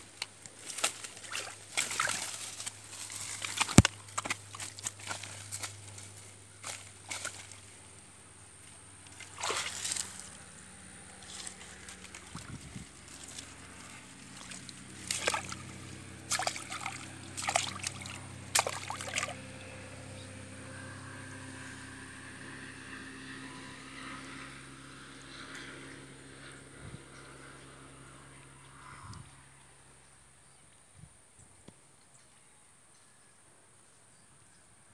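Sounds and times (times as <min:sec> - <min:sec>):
fish thrashing and splashing: 0:00.6 - 0:07.8, 0:09.0 - 0:19.9.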